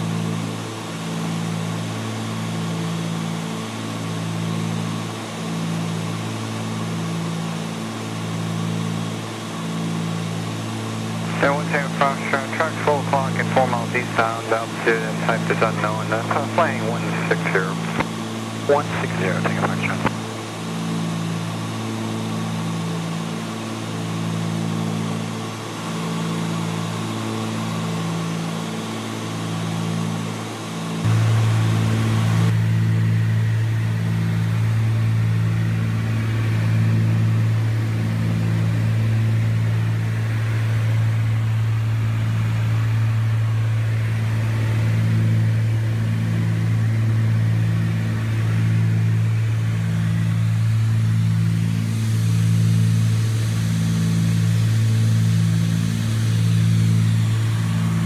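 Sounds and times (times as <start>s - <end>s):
propeller plane cabin drone: 0.0s - 58.0s
propeller beat throb: 11.1s - 20.8s, 31.0s - 58.0s.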